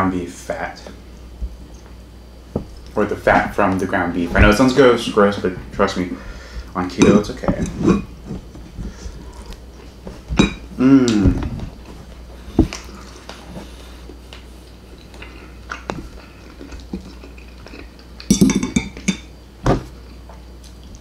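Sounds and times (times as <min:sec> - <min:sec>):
man chewing: 0:08.2 - 0:10.0, 0:10.7 - 0:18.4
man humming mmm: 0:10.7 - 0:11.6.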